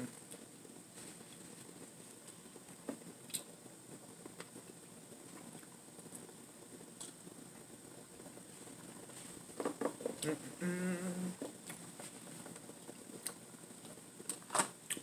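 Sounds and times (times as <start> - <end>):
person humming mmm: 10.1 - 11.5.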